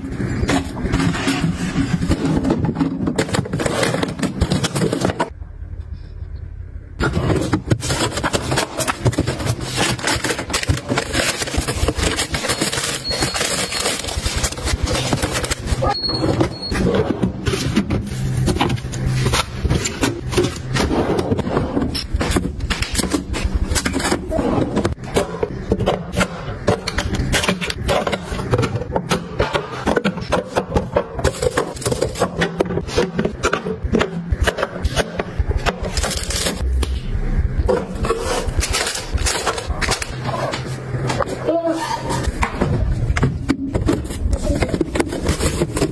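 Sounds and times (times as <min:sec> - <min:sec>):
plastic containers clicking and scraping: 0:00.0 - 0:05.4, 0:07.0 - 0:36.6, 0:37.7 - 0:45.9.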